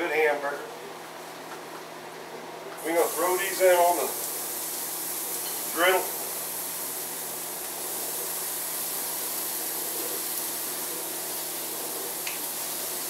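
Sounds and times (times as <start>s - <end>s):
patties sizzling in a pan: 2.8s - 13.0s.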